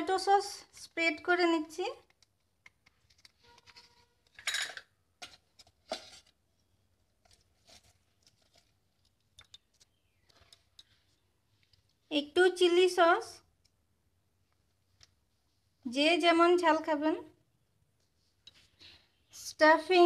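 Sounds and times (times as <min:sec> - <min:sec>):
plastic sachet rustling: 0:07.2 - 0:11.8.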